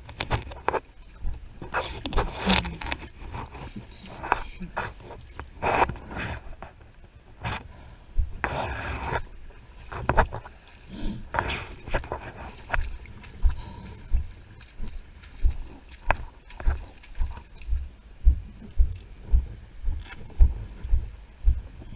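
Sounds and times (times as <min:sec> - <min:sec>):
footsteps on wet lane: 0:00.0 - 0:21.9
boots splashing through water: 0:07.5 - 0:21.7.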